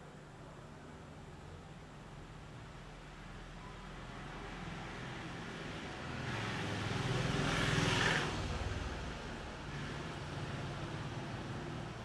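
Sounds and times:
vehicle passing by: 4.8s - 12.0s.

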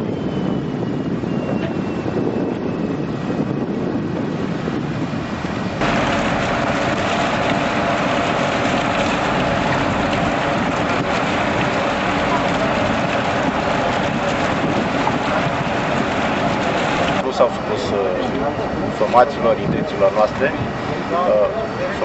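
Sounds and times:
wind on microphone: 0.0s - 22.0s
engine rumble: 0.8s - 22.0s.

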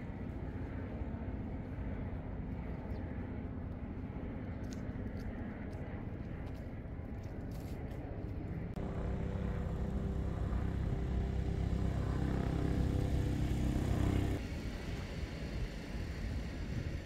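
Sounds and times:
engine running with low rumble: 0.0s - 17.0s.

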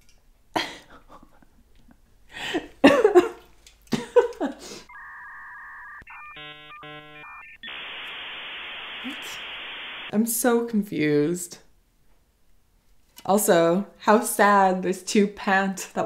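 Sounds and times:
telephone dialing tones: 4.9s - 10.0s
line static hiss: 4.9s - 10.1s
modem handshake tones: 4.9s - 10.1s.

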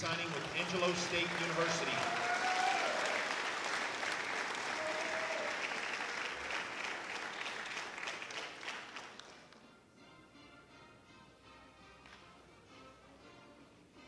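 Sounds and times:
audience clapping: 0.0s - 9.6s, 12.0s - 12.3s.

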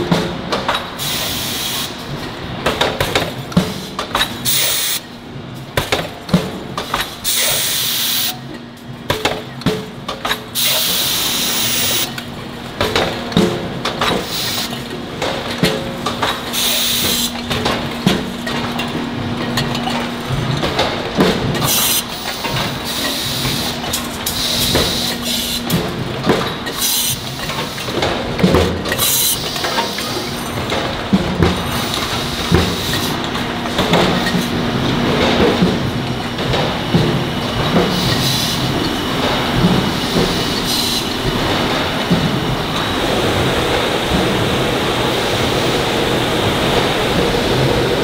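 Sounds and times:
steady machine hum: 9.9s - 29.0s, 29.7s - 48.0s
metallic clanks and knocks: 12.8s - 25.0s.

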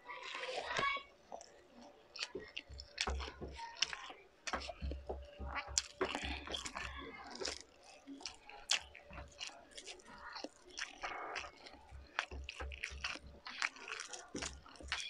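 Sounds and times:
chewing and wet mouth sounds: 0.0s - 15.0s
fingers picking at food: 0.2s - 15.0s.

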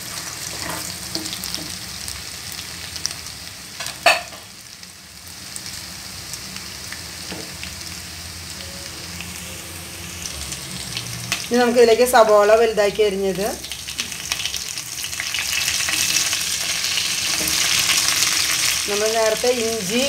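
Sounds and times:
garlic sizzling in hot oil: 0.0s - 20.0s
spoon stirring in pan: 15.7s - 18.8s.

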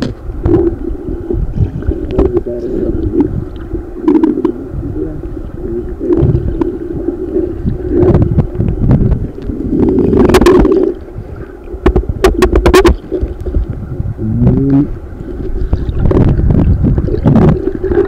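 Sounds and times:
underwater knocks: 0.0s - 4.6s, 6.0s - 6.8s, 7.6s - 10.9s, 11.8s - 13.8s
underwater water rumble: 0.0s - 18.0s.

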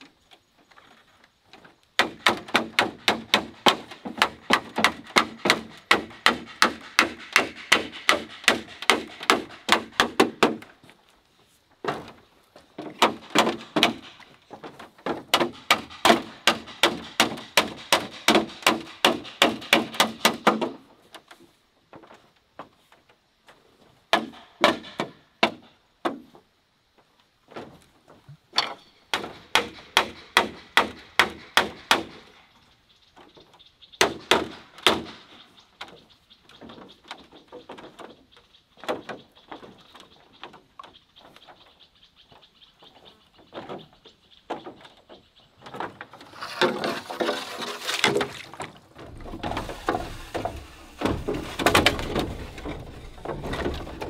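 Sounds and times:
wooden club knocking bamboo: 2.0s - 10.7s, 12.9s - 14.2s.

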